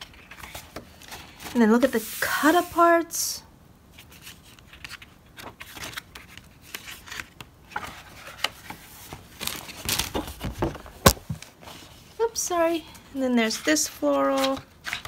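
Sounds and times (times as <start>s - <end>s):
paper rustling: 0.0s - 2.7s, 4.0s - 12.2s.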